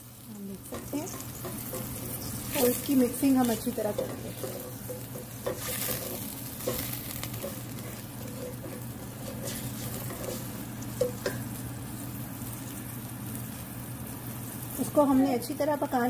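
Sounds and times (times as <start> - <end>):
paste sizzling in hot oil: 0.0 - 16.0
spatula scraping and tapping pot: 0.6 - 11.6.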